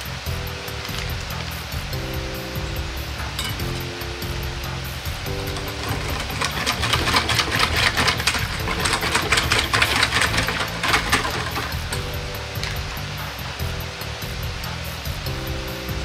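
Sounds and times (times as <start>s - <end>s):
wire whisk beating batter in metal bowl: 5.2s - 12.9s.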